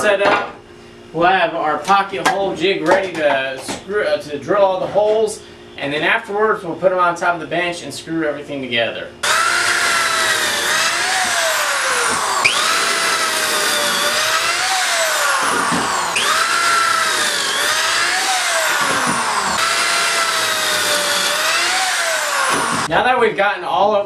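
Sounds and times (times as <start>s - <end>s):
power drill motor whine: 9.2s - 22.9s.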